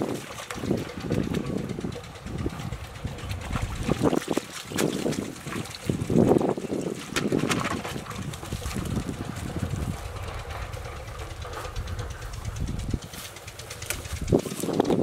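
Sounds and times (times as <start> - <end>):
low steady rumble: 0.0 - 15.0
rustling and clicking of pipe traps: 0.0 - 15.0.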